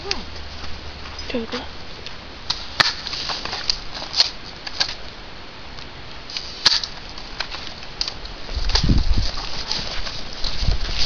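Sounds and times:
footsteps crunching dry leaves: 0:06.4 - 0:11.0.

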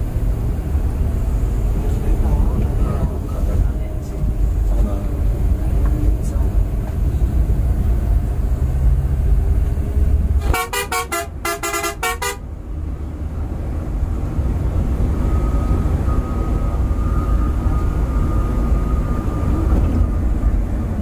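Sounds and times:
bus rumble and road noise: 0:00.0 - 0:21.0
vehicle horn toots: 0:10.4 - 0:12.4.

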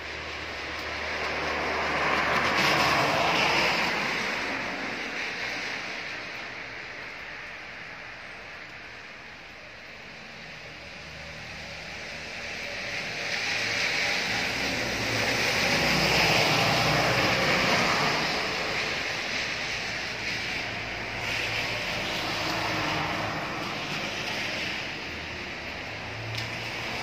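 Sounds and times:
vehicle passing by: 0:00.8 - 0:06.0, 0:12.6 - 0:27.0.

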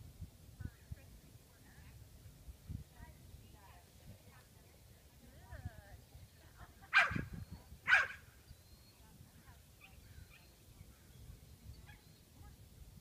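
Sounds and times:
dog barking: 0:06.9 - 0:07.2, 0:07.9 - 0:08.2.

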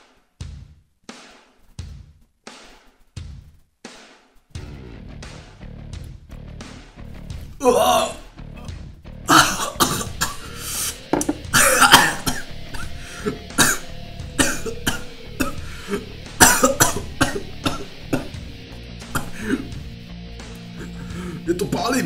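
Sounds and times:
music playing: 0:04.6 - 0:22.0
man coughing harshly: 0:07.6 - 0:08.2, 0:09.3 - 0:18.4, 0:19.1 - 0:19.8.

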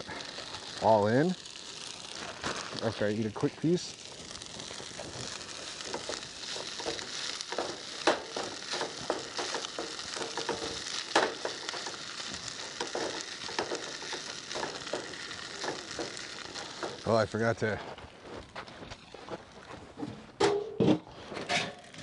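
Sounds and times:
food sizzling in a pot: 0:00.0 - 0:17.6.

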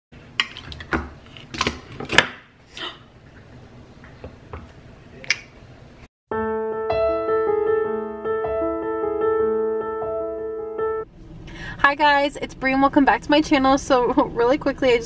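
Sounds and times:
piano music: 0:06.3 - 0:11.1.

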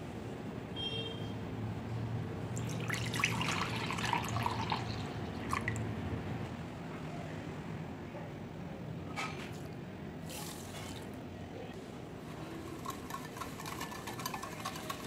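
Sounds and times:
milk splashing into bowl: 0:02.6 - 0:05.8.

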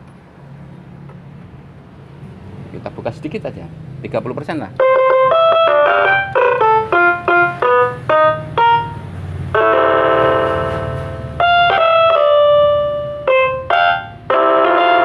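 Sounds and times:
keyboard melody through horn speaker: 0:04.8 - 0:15.0.

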